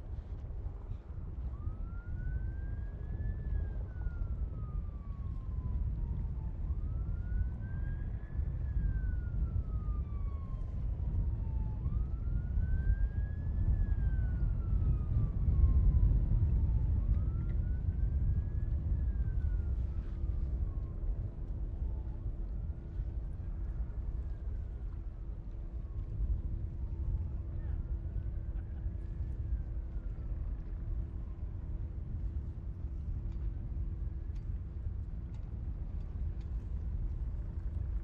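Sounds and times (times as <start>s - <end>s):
steady low rumble: 0.0s - 38.0s
siren wailing: 1.6s - 20.9s.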